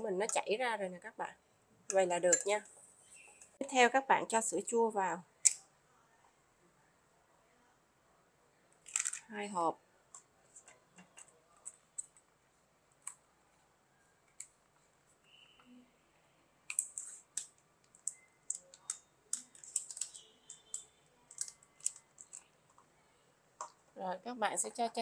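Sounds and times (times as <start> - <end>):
plastic cup crackling: 16.7 - 22.5.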